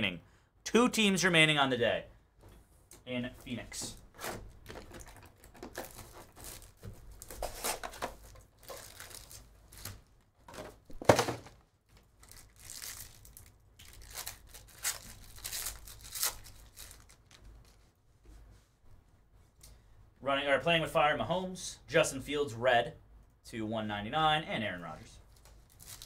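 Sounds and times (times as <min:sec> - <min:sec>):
plastic wrapper tearing and crinkling: 0:04.6 - 0:10.1, 0:12.0 - 0:17.8, 0:25.3 - 0:26.0.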